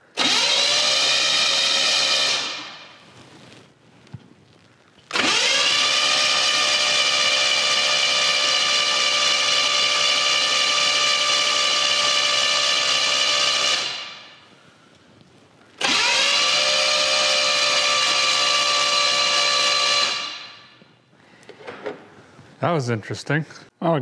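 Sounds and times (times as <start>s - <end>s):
engine cranking whine: 0.1s - 2.8s, 5.1s - 14.3s, 15.8s - 20.8s.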